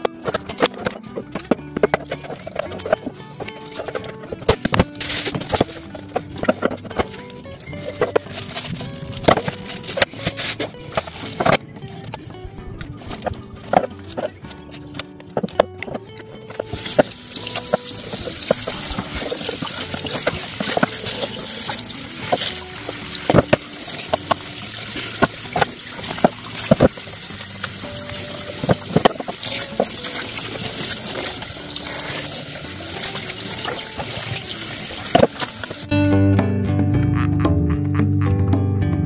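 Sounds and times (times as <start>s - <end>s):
tap water running into sink: 0.0s - 7.2s, 16.5s - 35.9s.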